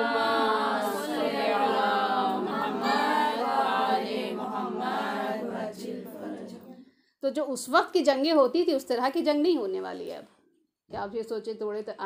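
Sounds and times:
group of voices chanting: 0.0s - 6.8s.

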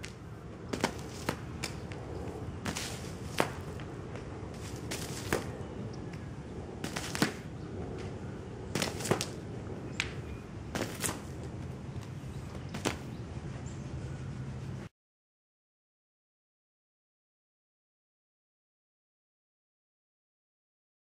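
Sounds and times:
low background noise: 0.0s - 14.9s.

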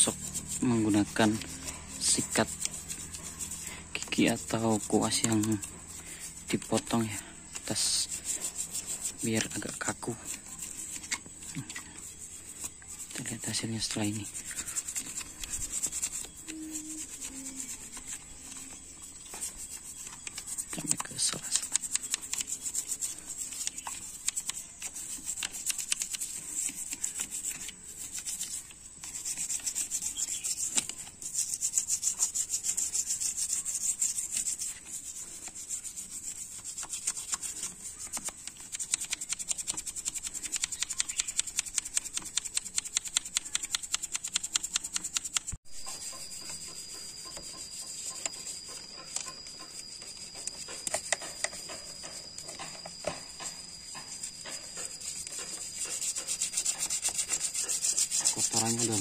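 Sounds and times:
toothbrush scrubbing metal: 0.0s - 59.0s
steady high-pitched tone: 45.7s - 59.0s.

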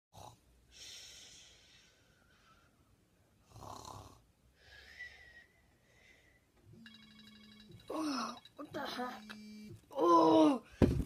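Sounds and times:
faint breathy snoring: 0.1s - 1.9s, 3.4s - 5.0s.

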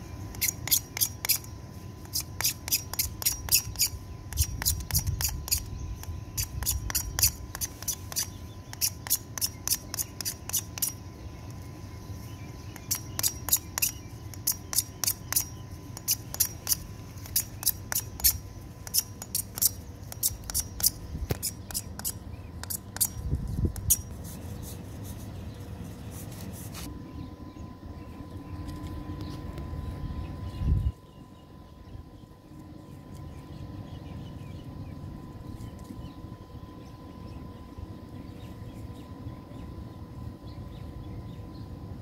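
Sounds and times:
metal tool scraping plastic pipe: 0.3s - 11.0s.

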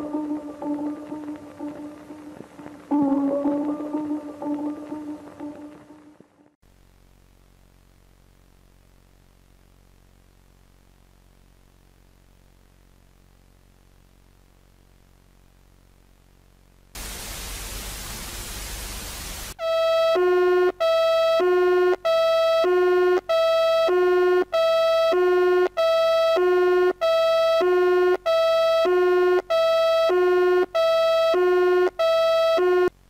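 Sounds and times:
static hiss: 0.0s - 20.8s
emergency alert tone: 19.6s - 32.9s.

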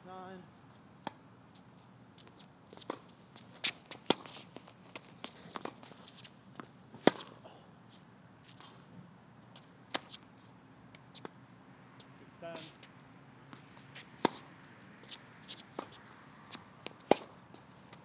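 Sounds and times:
tennis ball pops off racket: 4.1s - 4.4s, 16.8s - 17.4s.

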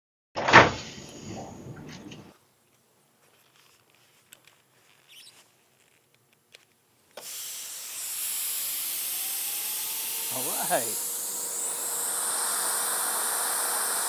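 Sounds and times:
compressed air hissing: 7.2s - 14.0s.

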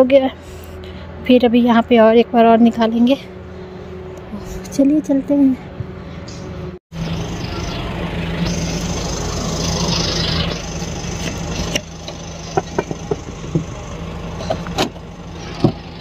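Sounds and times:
car engine running: 6.9s - 16.0s.

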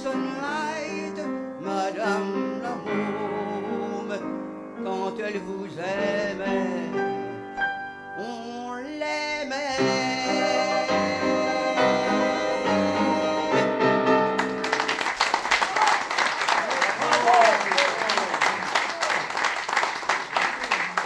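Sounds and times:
piano accompaniment: 0.0s - 15.2s
woman singing: 8.2s - 13.8s
audience applause: 14.4s - 21.0s.

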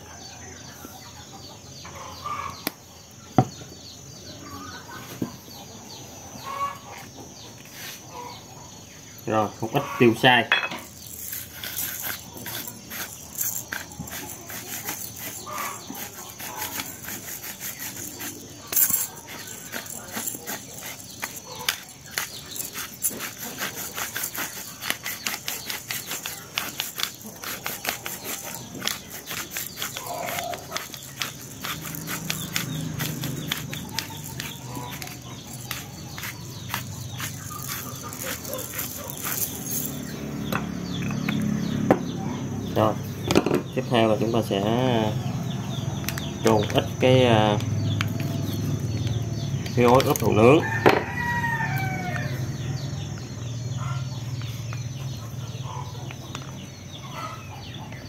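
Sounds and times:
pepper shaker rattling: 10.8s - 40.2s.

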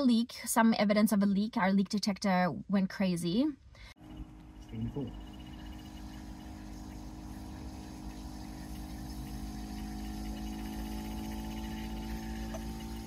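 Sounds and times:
steady low hum: 3.6s - 13.0s
leak detector ticking: 4.0s - 13.0s.

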